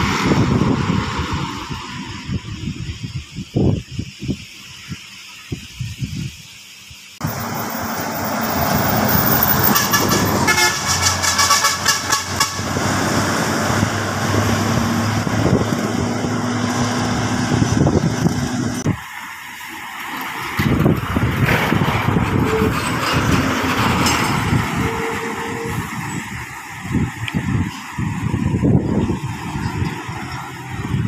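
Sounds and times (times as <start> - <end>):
bus engine passing: 0.0 - 2.8, 7.2 - 31.0
vehicle horn: 9.4 - 12.8, 24.8 - 25.9.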